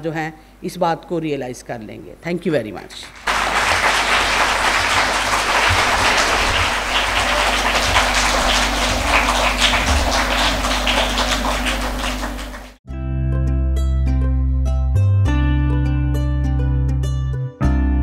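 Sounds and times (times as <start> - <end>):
audience applauding: 3.0 - 12.8.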